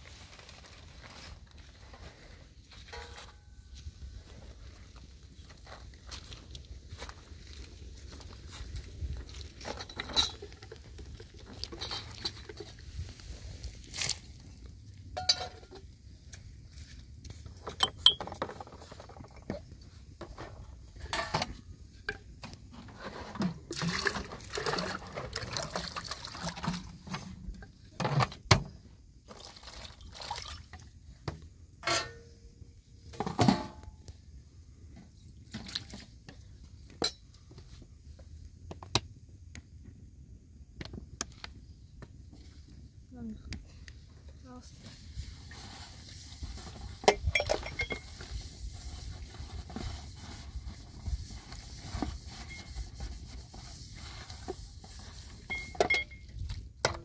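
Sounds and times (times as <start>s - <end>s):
water pouring and splashing: 9.2s - 14.4s, 23.6s - 27.3s, 29.3s - 30.9s
clinks and knocks: 15.2s - 15.8s, 17.6s - 19.6s.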